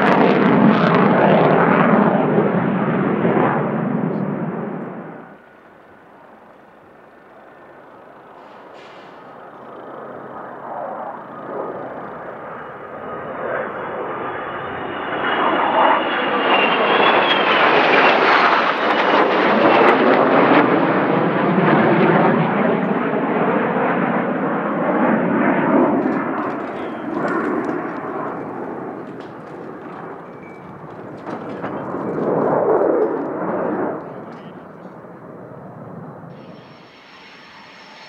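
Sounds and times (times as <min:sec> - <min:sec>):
fast jets flying past: 0:00.0 - 0:05.5, 0:07.6 - 0:38.0
faint high whine: 0:04.0 - 0:18.1, 0:30.0 - 0:32.3, 0:36.2 - 0:38.0.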